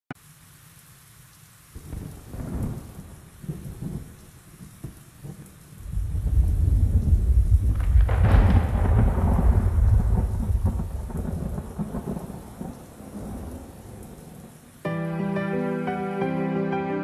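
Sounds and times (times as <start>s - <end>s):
rain: 0.1s - 17.0s
thunder rumbling: 1.8s - 14.8s.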